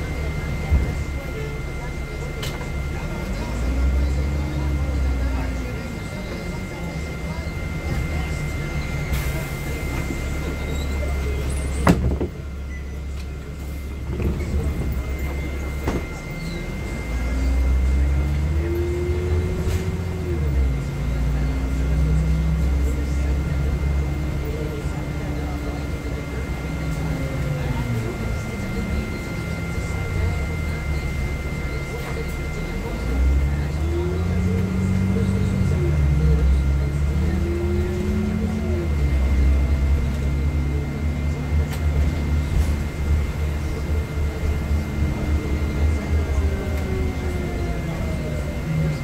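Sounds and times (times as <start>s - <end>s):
bus rumbling at low speed: 0.0s - 49.0s
steady high whine: 0.0s - 49.0s.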